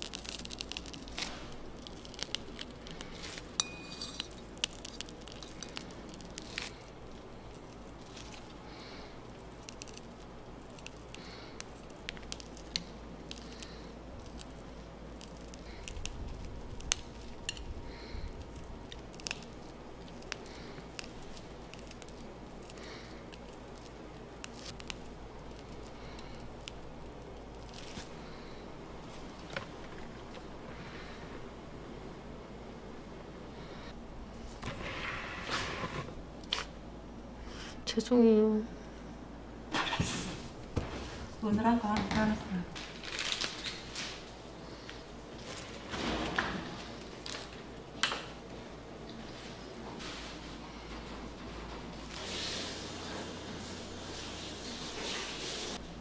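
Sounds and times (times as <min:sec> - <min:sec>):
whipped cream squishing through piping tip: 0:00.0 - 0:29.8
steady low hum: 0:00.0 - 0:55.0.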